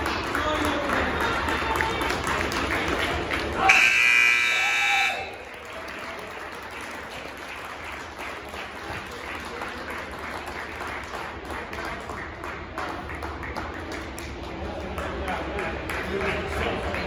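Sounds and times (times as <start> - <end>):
crowd applauding and cheering: 0.0 - 17.0
crowd chatter: 0.0 - 17.0
game buzzer: 3.6 - 5.4.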